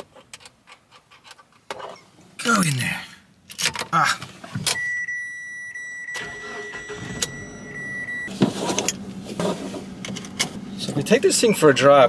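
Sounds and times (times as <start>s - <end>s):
dashboard warning chime: 4.7s - 8.3s
car engine starting and idling: 4.7s - 12.0s.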